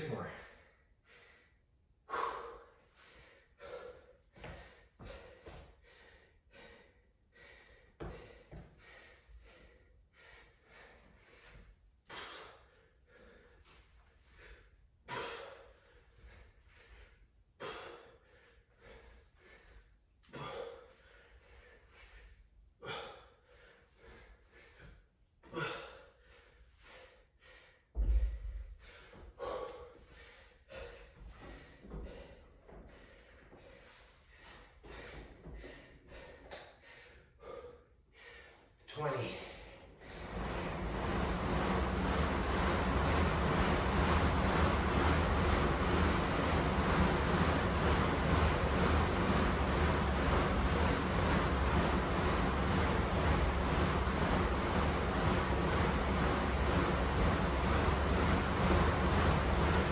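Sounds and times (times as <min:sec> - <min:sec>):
man panting: 0:00.0 - 0:44.1.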